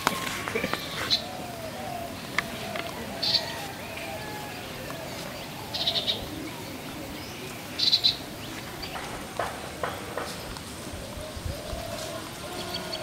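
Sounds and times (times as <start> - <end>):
faint outdoor background: 0.0 - 13.0
bird chattering call: 5.4 - 6.6, 7.5 - 10.6.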